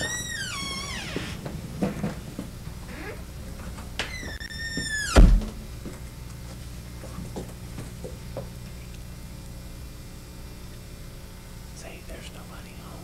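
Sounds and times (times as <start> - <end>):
door hinge squeak: 0.0 - 1.4, 4.0 - 5.4
door closing thud: 4.0 - 5.6.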